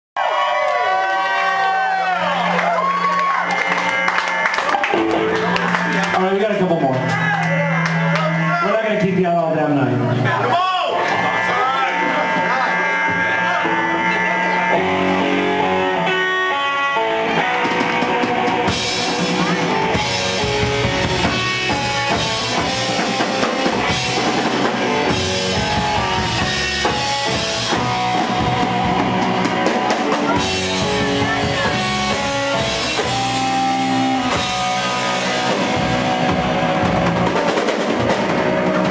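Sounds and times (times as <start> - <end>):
electric guitar: 0.2 - 38.9
upright bass: 3.9 - 38.9
drums and cymbals: 17.2 - 38.9.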